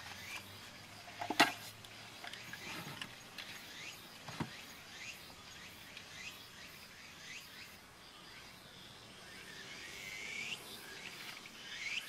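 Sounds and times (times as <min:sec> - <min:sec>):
high rising bird chirp: 0:03.6 - 0:12.0.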